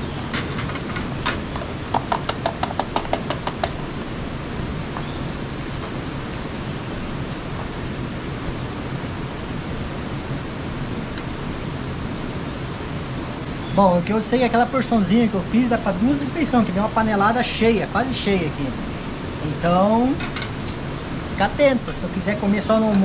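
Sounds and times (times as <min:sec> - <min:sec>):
steady hiss: 0:00.0 - 0:23.0
hand tapping metal can: 0:01.9 - 0:03.8.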